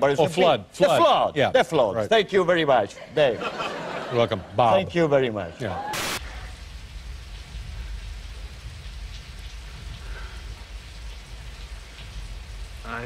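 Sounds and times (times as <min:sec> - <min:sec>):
steady rainfall hiss: 0:00.0 - 0:13.0
continuous low rumble: 0:06.2 - 0:13.0
faint scattered drips: 0:06.2 - 0:13.0.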